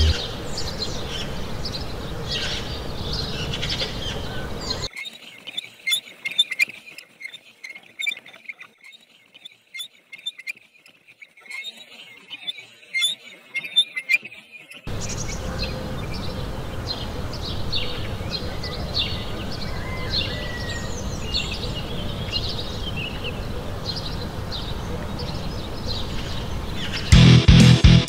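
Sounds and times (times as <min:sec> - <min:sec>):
loud electric guitar music: 0:00.0 - 0:00.3, 0:27.1 - 0:28.0
low steady rumble: 0:00.0 - 0:00.3
small birds chirping: 0:00.0 - 0:27.2.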